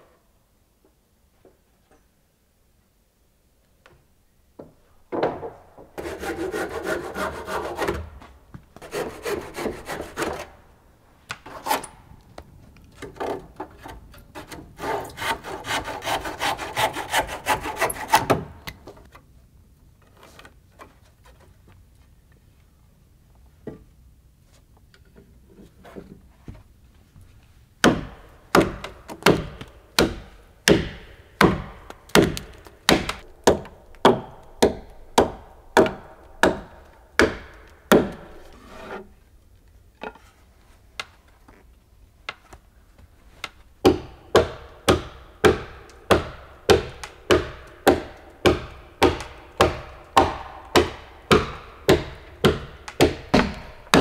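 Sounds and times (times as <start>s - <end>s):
hatchet striking wood: 27.8s - 38.4s, 43.8s - 54.0s.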